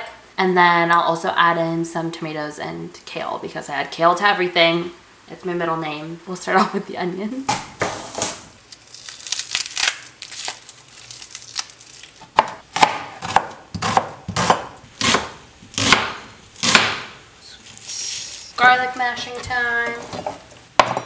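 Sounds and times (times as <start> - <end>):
knife slicing onion: 12.3 - 17.1.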